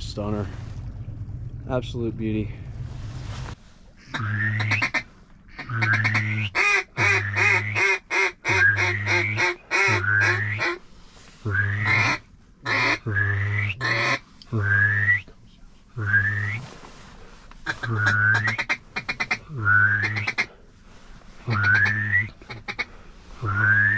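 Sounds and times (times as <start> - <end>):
duck call quacks: 4.0 - 10.8, 11.5 - 14.2, 17.6 - 20.5, 21.5 - 22.9.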